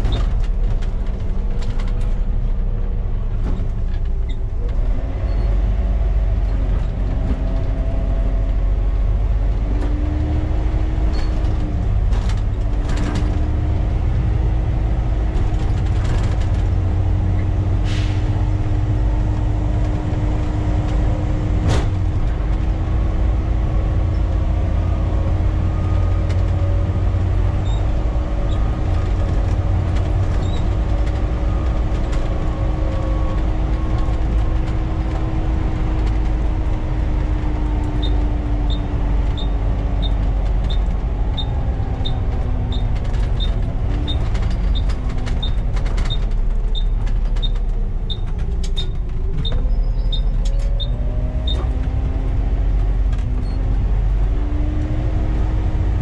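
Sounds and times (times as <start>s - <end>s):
sharp clicks and rattles: 0.0s - 2.6s, 23.6s - 55.0s
bus diesel engine running: 0.0s - 56.0s
drivetrain whine: 0.0s - 56.0s.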